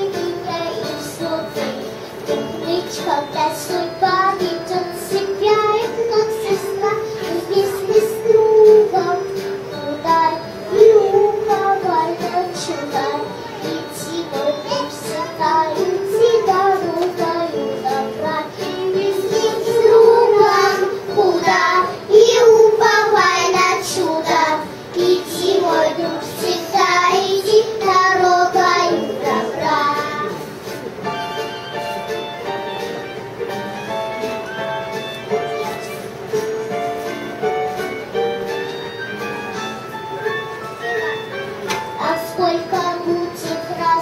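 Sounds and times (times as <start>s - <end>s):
girl singing into microphone: 0.0s - 30.5s, 42.0s - 44.0s
backing music: 0.0s - 44.0s.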